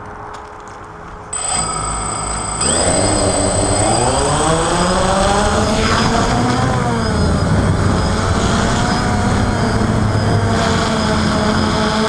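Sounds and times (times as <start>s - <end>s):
drone propellers whining: 1.4s - 12.0s
wind noise: 2.6s - 12.0s.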